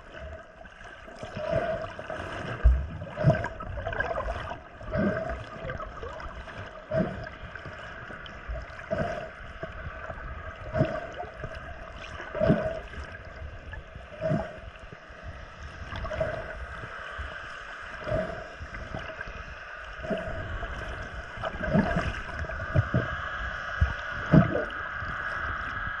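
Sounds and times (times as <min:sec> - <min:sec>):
rhythmic swimming swishes: 0:00.0 - 0:24.9
muffled underwater water noise: 0:00.0 - 0:26.0.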